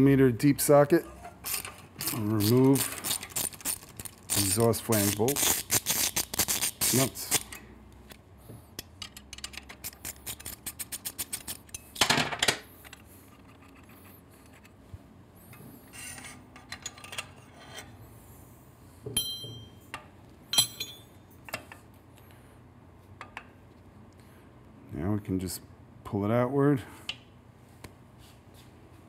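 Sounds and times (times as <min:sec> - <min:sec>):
metal clinks and taps: 0:19.1 - 0:21.6.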